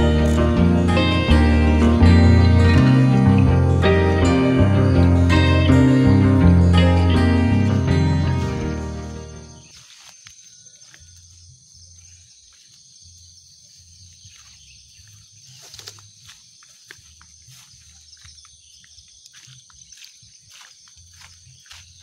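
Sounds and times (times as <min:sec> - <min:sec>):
high insect trill: 0:00.0 - 0:22.0
footsteps through grass and leaves: 0:06.7 - 0:22.0.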